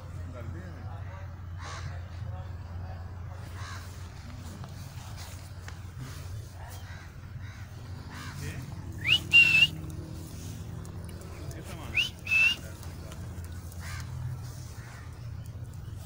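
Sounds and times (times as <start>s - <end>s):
parakeet whistling: 9.0s - 9.8s, 11.9s - 12.6s.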